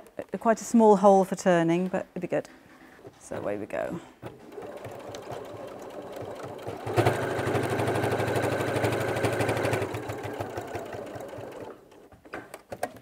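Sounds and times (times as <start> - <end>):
electric sewing machine stitching: 4.3 - 12.0.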